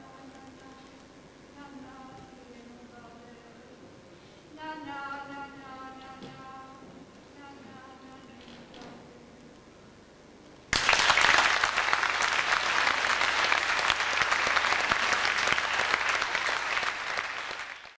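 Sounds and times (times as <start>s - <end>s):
audience applause: 10.7s - 18.0s.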